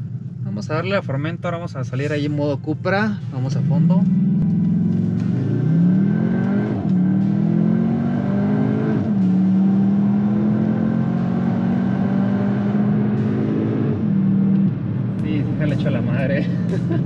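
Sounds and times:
car engine accelerating: 3.5 - 17.0.

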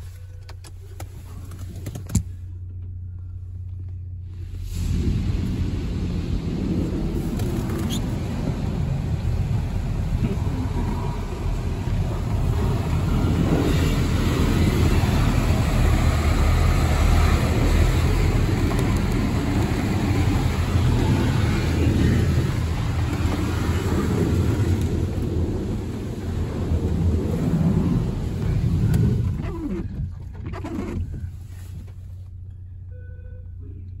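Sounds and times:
water jets drumming on car body: 4.4 - 29.8.

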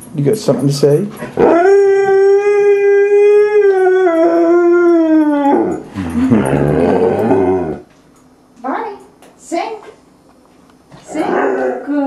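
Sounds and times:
dog howling: 1.4 - 7.9, 11.1 - 12.0.

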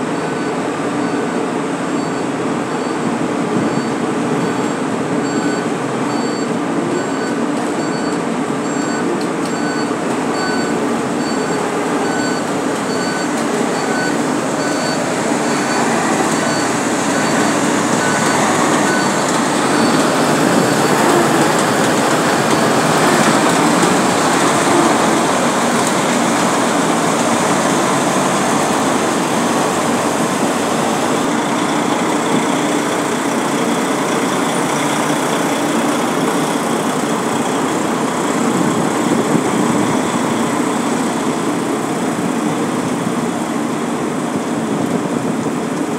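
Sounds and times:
dump truck engines running: 0.0 - 45.9
faint high beep: 0.2 - 1.4, 2.0 - 21.3.

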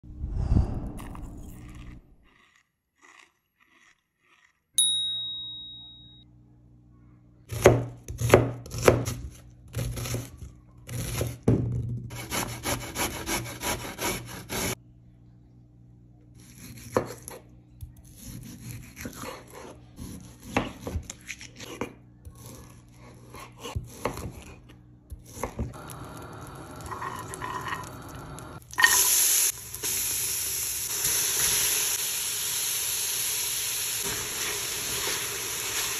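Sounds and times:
ringing clink: 4.8 - 6.2
food sizzling in hot pot: 25.8 - 35.9.

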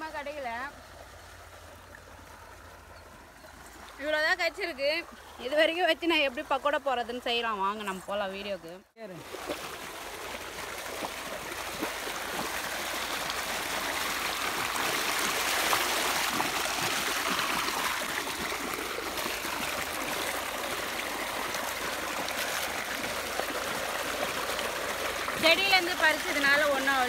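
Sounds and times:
water gushing from pipe: 9.2 - 27.0.

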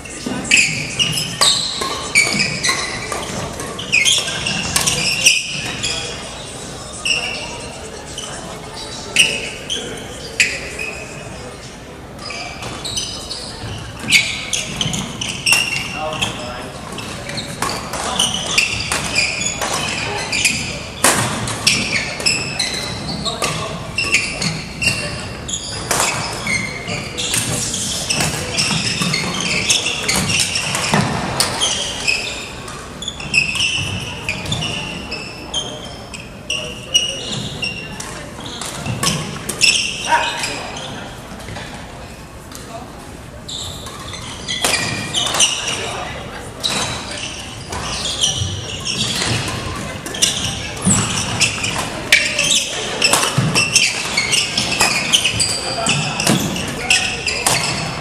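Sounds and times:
sneakers squeaking on wooden floor: 0.0 - 58.0
rackets hitting shuttlecock: 17.0 - 25.1, 48.9 - 58.0
racket hitting shuttlecock: 21.0 - 22.2, 53.0 - 55.4.

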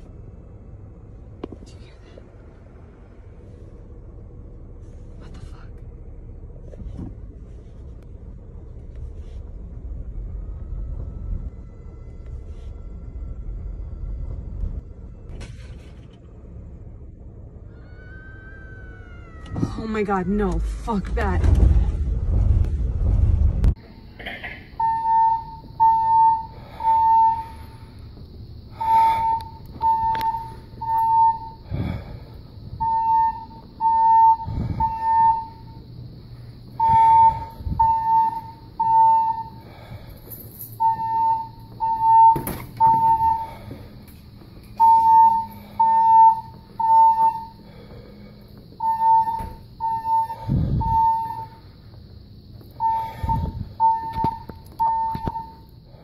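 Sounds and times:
low thumps: 20.8 - 23.8
fire alarm beeping: 24.8 - 27.9, 28.7 - 32.0, 32.8 - 36.0, 36.7 - 39.9, 40.7 - 43.8, 44.7 - 47.7, 48.5 - 51.8, 52.6 - 55.8.

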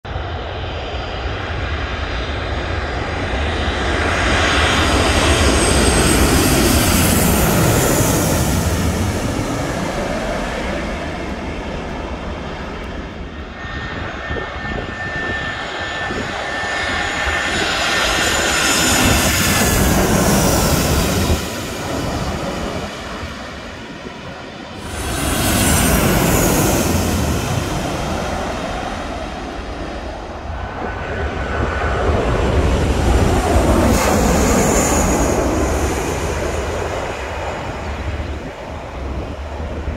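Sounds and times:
high jet engine whine: 0.0 - 39.9
jet airliners passing overhead: 0.1 - 39.9.

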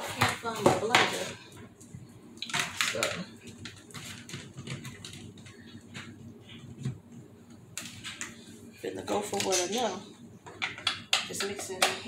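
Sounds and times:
kitchen items clicking and knocking: 9.1 - 12.0.

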